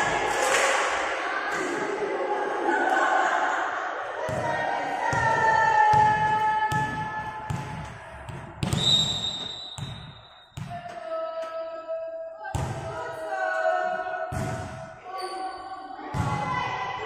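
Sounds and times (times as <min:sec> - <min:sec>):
volleyball thudding: 0:05.1 - 0:10.9
referee's whistle: 0:08.8 - 0:10.6.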